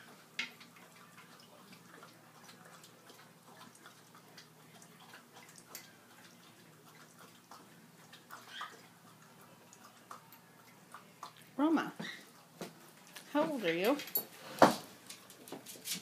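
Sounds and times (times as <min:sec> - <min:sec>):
dog lapping water: 0:00.0 - 0:13.2.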